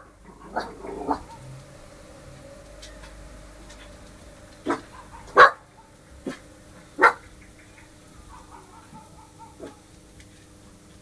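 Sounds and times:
dog barking: 0.5 - 1.5, 4.6 - 6.4, 7.0 - 7.3, 8.2 - 9.9.

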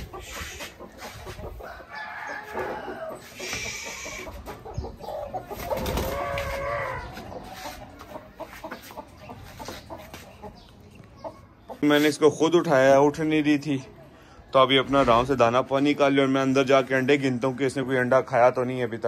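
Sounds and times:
hen clucking: 0.0 - 12.6.

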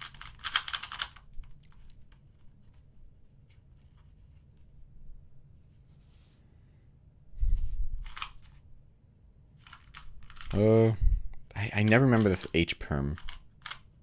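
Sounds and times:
plastic puzzle cube clacking: 0.0 - 2.5, 8.0 - 8.6, 9.6 - 10.6, 11.7 - 13.9
faint cube handling clicks: 0.0 - 2.8, 8.0 - 8.6, 9.6 - 10.6, 11.8 - 13.9.

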